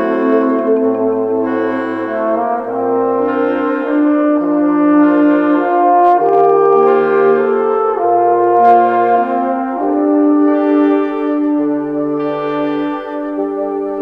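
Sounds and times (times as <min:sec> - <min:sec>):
slow instrumental music: 0:00.0 - 0:14.0.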